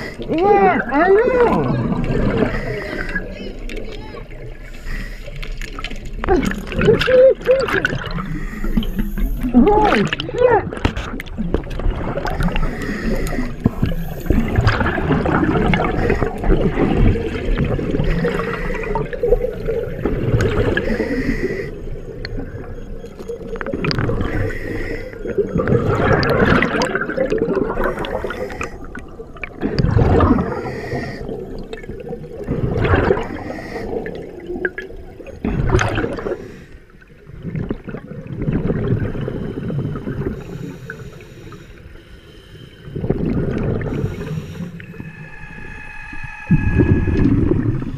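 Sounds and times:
diver's exhaled bubbles rushing: 5.6s - 21.1s, 21.9s - 24.5s, 25.2s - 36.5s, 37.2s - 40.4s, 43.0s - 47.9s.

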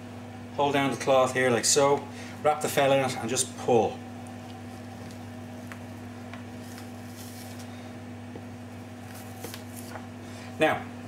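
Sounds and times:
low electrical hum: 0.0s - 11.0s
soft squishing of meat skin: 4.2s - 7.7s.

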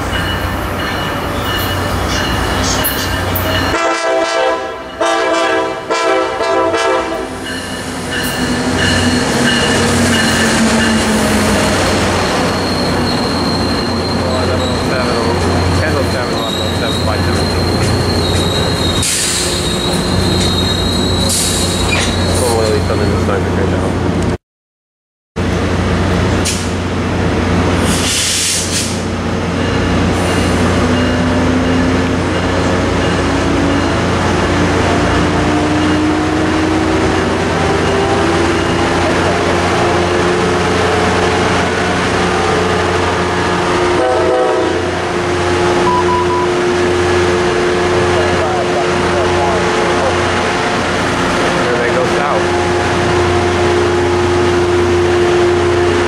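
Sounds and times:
train wheels rumbling on rails: 0.0s - 4.0s, 5.6s - 24.4s, 25.4s - 56.0s
diesel locomotive humming: 0.0s - 24.4s, 25.4s - 56.0s
train horn chord: 3.7s - 7.3s, 43.9s - 44.9s, 45.8s - 46.8s
high-pitched wheel squeal: 12.3s - 23.2s
short beeps: 45.8s - 46.6s.

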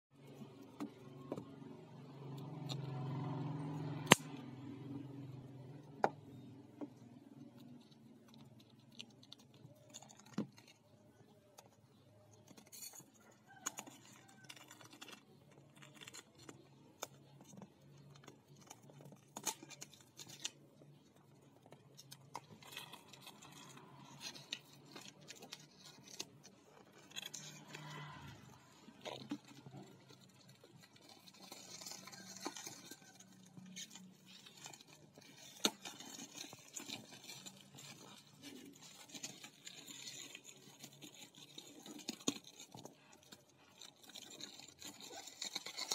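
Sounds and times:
plastic wrap crinkling: 12.4s - 45.9s.

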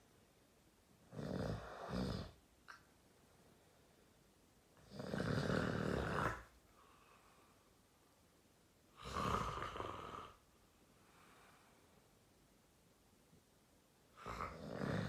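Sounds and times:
man snoring loudly: 1.1s - 2.4s, 4.8s - 6.5s, 9.0s - 10.4s, 14.2s - 15.0s.

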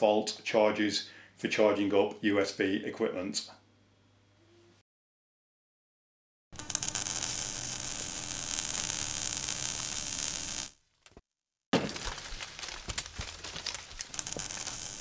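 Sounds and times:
hissing crackle: 6.6s - 10.8s, 12.0s - 15.0s.

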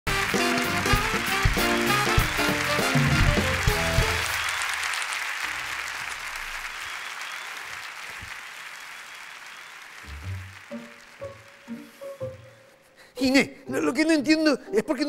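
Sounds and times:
theme tune music: 0.1s - 4.5s, 10.1s - 15.0s
audience applauding: 0.1s - 12.6s.

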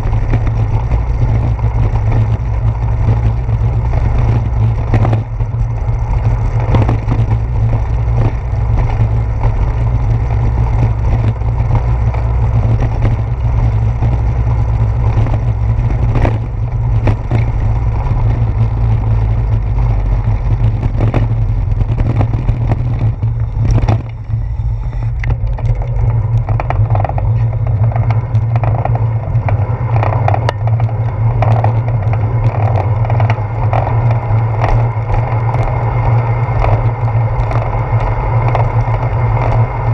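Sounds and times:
knocks and rattles from bumps: 0.0s - 24.4s
bicycle rolling over pavement: 0.0s - 39.9s.

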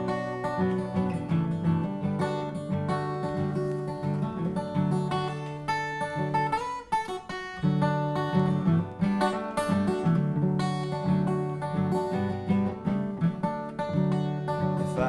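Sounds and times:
acoustic guitar: 0.0s - 15.0s.

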